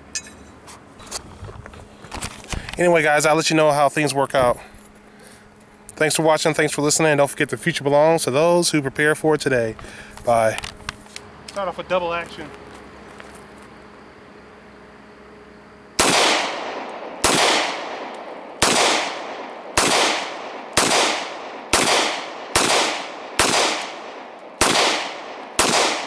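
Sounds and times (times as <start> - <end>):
pistol shots: 16.0 - 26.0.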